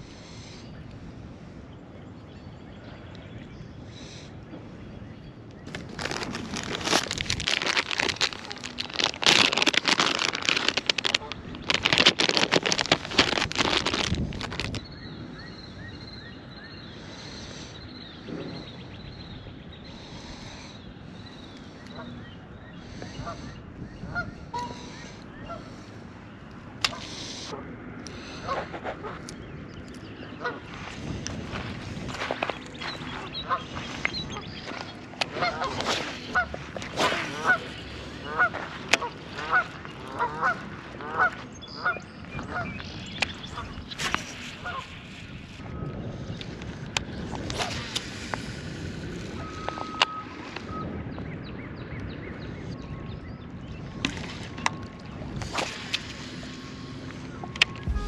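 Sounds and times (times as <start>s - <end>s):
steady wind: 0.0s - 58.0s
geese honking: 22.9s - 26.0s, 30.4s - 30.9s, 32.9s - 42.8s
small birds chirping: 29.2s - 45.6s.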